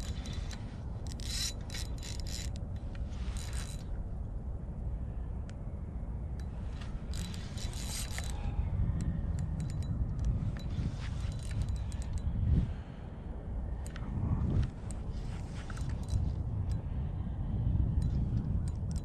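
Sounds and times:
fishing reel scraping and rustling: 0.0 - 4.0, 6.6 - 12.6, 14.5 - 16.4
low wind rumble on microphone: 0.0 - 19.0
small clicks: 13.8 - 16.8.

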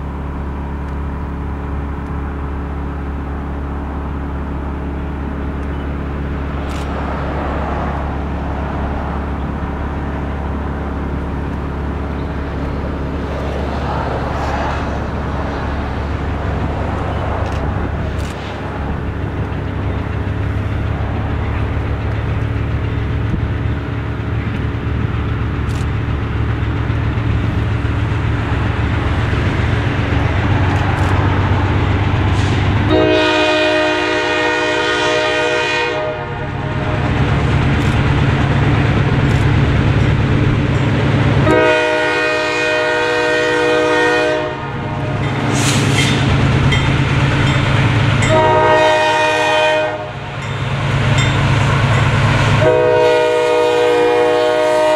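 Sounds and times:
diesel locomotive engine drone: 0.0 - 54.9
train air horn blasts: 32.4 - 37.0, 41.4 - 45.8, 48.2 - 50.2, 52.6 - 54.9.

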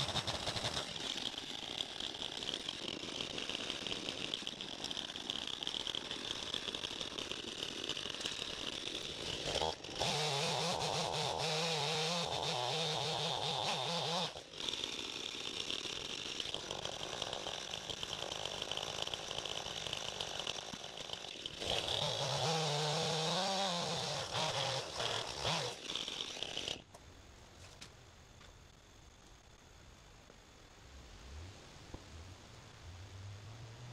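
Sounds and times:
chainsaw cutting wood: 0.0 - 27.0.

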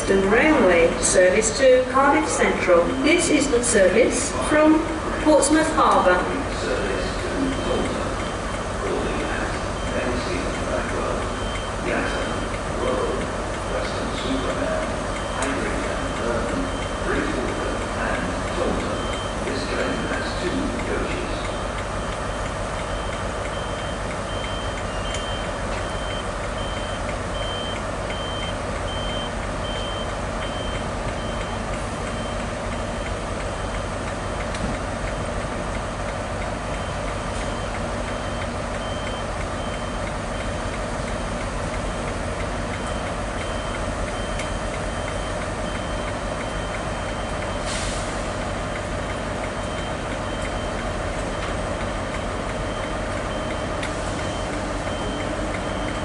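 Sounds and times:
diesel train engine drone: 0.0 - 56.0
high repeated beep: 11.4 - 12.5, 18.9 - 20.1, 22.9 - 32.4, 36.8 - 40.0.

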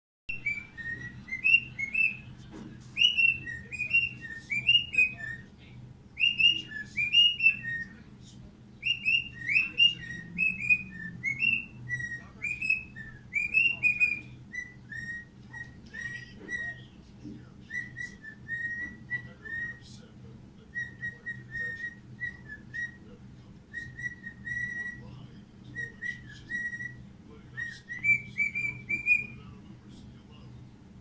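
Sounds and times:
cockatiel whistling: 0.3 - 2.3, 3.0 - 5.5, 6.2 - 8.0, 8.8 - 17.0, 17.6 - 19.9, 20.7 - 23.1, 23.7 - 25.1, 25.7 - 29.6.

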